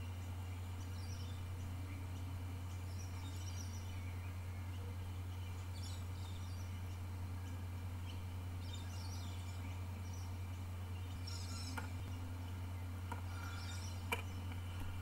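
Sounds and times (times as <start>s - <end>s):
faint bird chirps: 0.0s - 15.0s
steady low hum: 0.0s - 15.0s.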